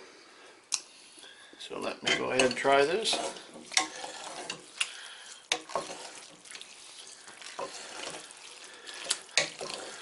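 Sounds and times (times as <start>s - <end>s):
wet squelching of stirred sauce: 2.1s - 10.0s.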